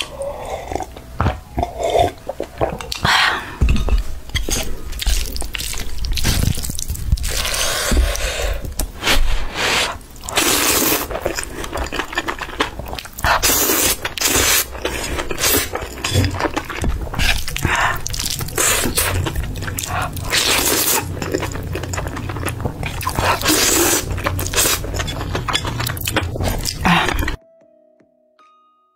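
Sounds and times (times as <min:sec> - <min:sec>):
chewing and mouth sounds: 0:00.0 - 0:08.9, 0:10.2 - 0:27.4
slurping noodles: 0:05.0 - 0:11.7, 0:13.2 - 0:16.0, 0:17.1 - 0:21.6, 0:22.9 - 0:27.4.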